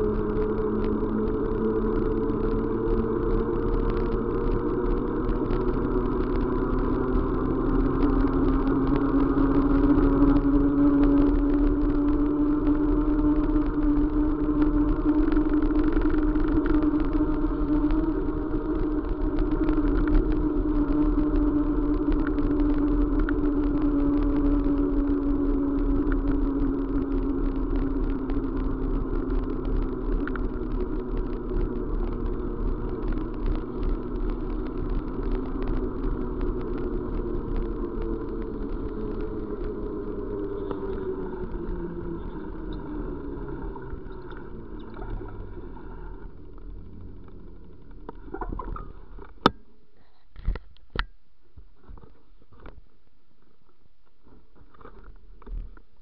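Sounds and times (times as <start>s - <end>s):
fast patter of small clicks: 0.0s - 56.0s
vehicle engine hum: 0.0s - 56.0s.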